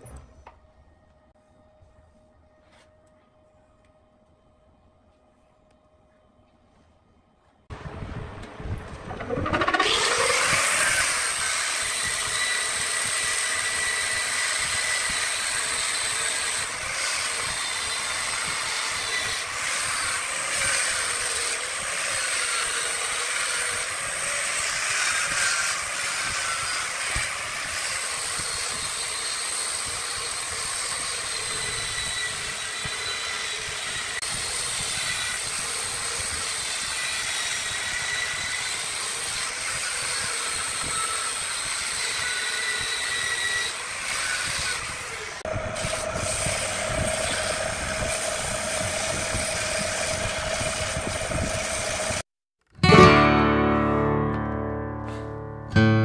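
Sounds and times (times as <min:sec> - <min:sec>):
motor spinning up: 0:09.0 - 0:36.8, 0:42.1 - 0:52.2
angle grinder motor whine: 0:09.0 - 0:52.2.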